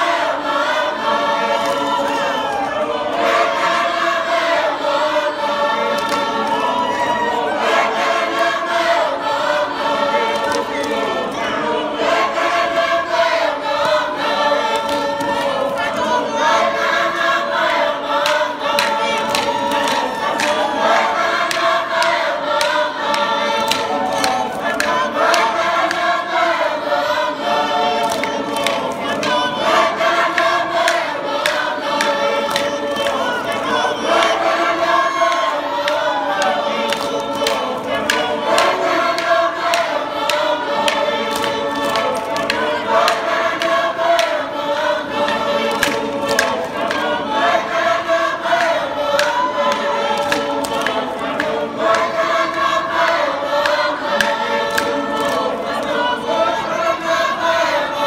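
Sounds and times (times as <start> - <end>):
mixed choir chanting: 0.0 - 58.0
sharp hand claps: 5.9 - 6.6, 10.2 - 11.0, 17.7 - 26.6, 28.0 - 56.0.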